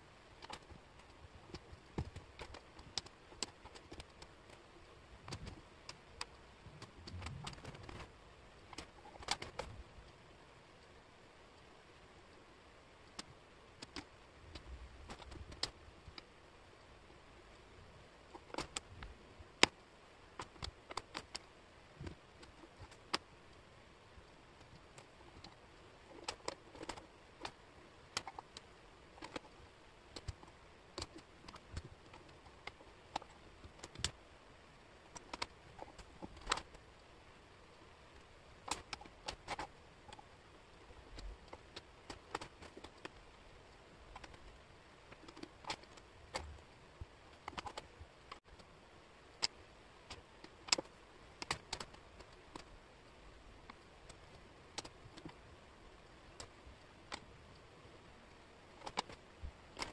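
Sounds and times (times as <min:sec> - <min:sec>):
wooden puzzle pieces clicking: 0:00.4 - 0:04.6, 0:05.2 - 0:09.7, 0:13.1 - 0:16.3, 0:18.3 - 0:19.8, 0:20.4 - 0:23.3, 0:24.6 - 0:34.2, 0:35.1 - 0:36.8, 0:38.6 - 0:40.3, 0:41.1 - 0:43.2, 0:44.0 - 0:46.6, 0:47.3 - 0:48.7, 0:49.3 - 0:52.8, 0:58.7 - 0:59.9.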